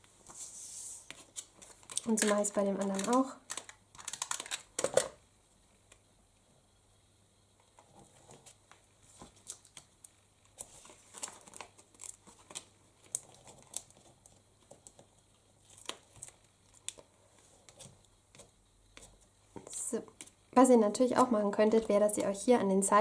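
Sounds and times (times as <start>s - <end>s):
paper crinkling: 0.2s - 5.2s, 8.3s - 20.4s.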